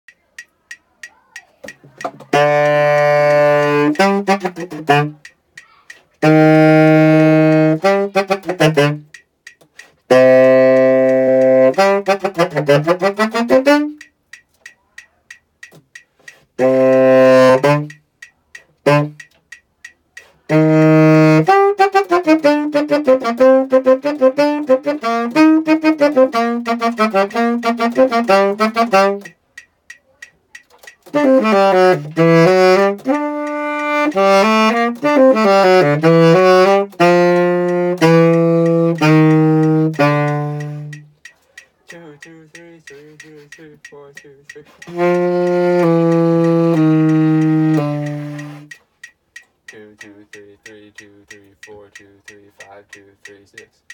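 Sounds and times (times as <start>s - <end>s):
tenor saxophone melody: 2.2s - 5.3s, 6.2s - 9.2s, 10.1s - 14.1s, 16.6s - 18.0s, 18.8s - 19.4s, 20.4s - 29.4s, 30.8s - 41.2s, 42.9s - 48.8s.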